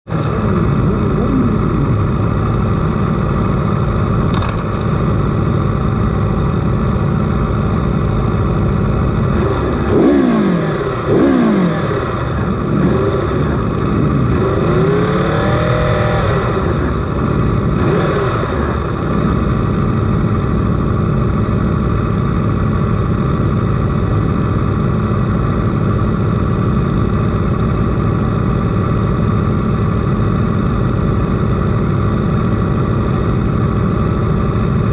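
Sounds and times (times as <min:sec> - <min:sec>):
engines revving: 0:00.1 - 0:04.8, 0:09.0 - 0:19.9
motorcycle engines idling: 0:00.1 - 0:34.9.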